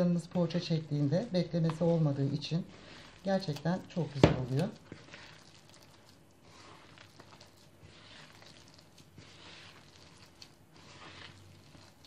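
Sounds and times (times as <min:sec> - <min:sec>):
hands kneading dough: 0:00.0 - 0:12.0.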